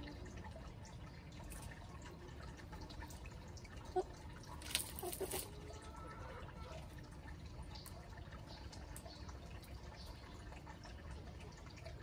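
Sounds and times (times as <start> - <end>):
hens scratching in dry leaves: 4.6 - 5.8.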